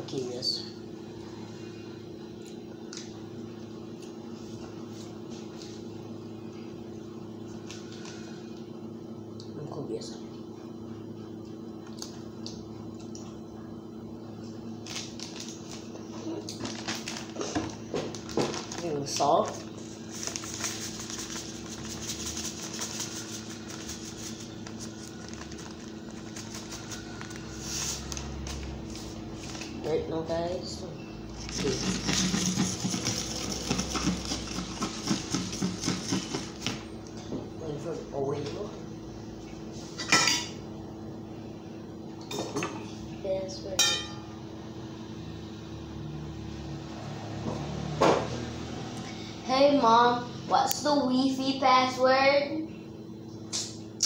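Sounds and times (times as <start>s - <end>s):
steady low hum: 0.0s - 54.0s
plastic bag crinkling: 16.5s - 28.8s.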